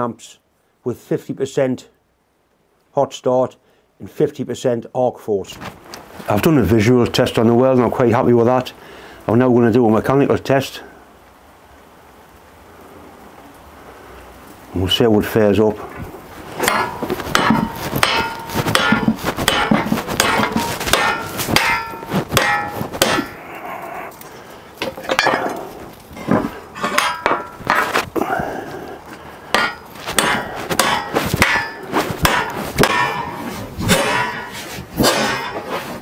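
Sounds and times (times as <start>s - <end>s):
hammer clanging on steel: 16.6s - 23.4s, 24.8s - 28.0s, 29.5s - 35.7s.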